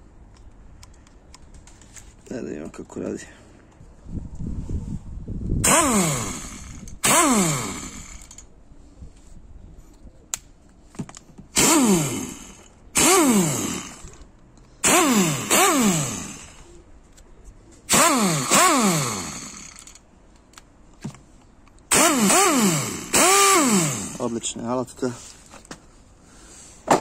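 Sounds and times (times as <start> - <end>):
air impact wrench bursts: 5.6 - 8.4, 11.5 - 14.2, 14.8 - 16.6, 17.9 - 20.0, 21.9 - 24.4.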